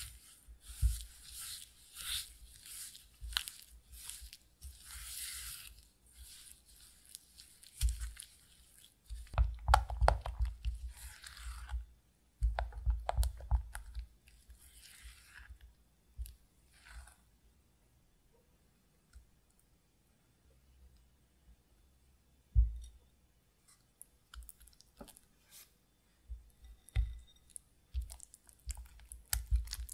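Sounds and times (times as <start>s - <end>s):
spatula scraping in glass bowl: 0.0s - 8.9s
spatula tapping glass: 26.5s - 28.1s.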